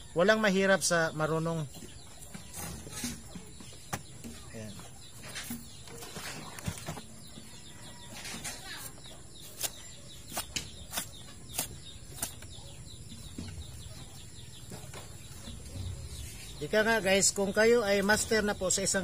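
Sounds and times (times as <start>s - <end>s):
faint bird chirps: 0.0s - 19.0s
knife clicking through carcass: 9.5s - 12.5s.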